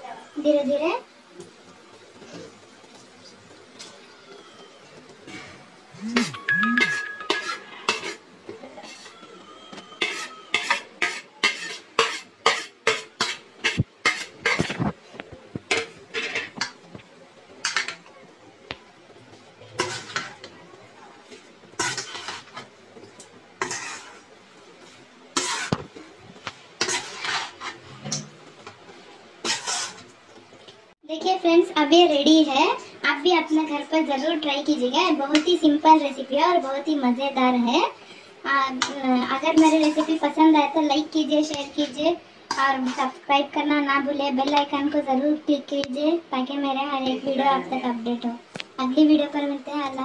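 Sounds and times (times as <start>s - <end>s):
metal spoon scraping metal pan: 6.8s - 8.2s, 10.0s - 14.8s, 15.7s - 16.6s, 19.8s - 20.3s, 21.8s - 22.6s, 23.6s - 24.3s, 25.4s - 25.8s, 26.8s - 28.3s, 29.4s - 30.1s.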